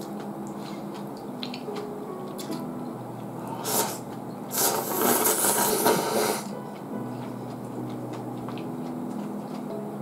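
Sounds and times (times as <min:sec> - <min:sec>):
person slurping noodles: 0:03.6 - 0:06.5.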